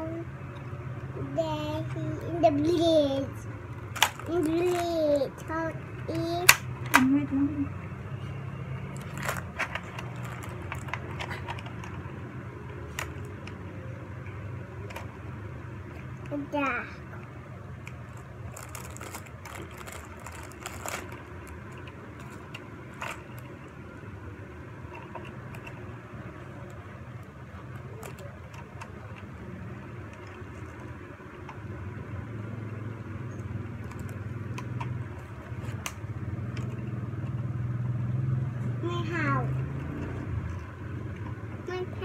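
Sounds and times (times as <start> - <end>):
steady low hum: 0.0 - 42.0
cards and plastic toys clicking: 3.8 - 5.2, 6.1 - 7.1, 8.9 - 12.1, 12.7 - 13.7, 17.2 - 23.6, 24.9 - 25.9, 27.2 - 29.4, 33.3 - 37.4.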